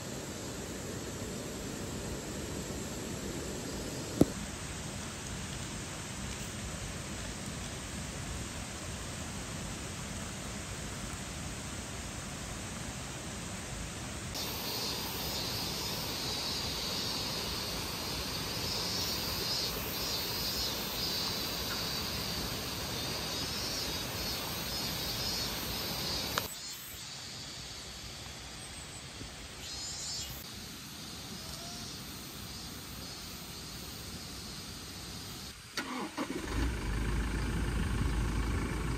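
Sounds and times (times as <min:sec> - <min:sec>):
insect chirring: 0:00.0 - 0:06.6, 0:14.4 - 0:38.9
mountain stream rushing: 0:00.8 - 0:26.4
click: 0:26.3 - 0:26.5.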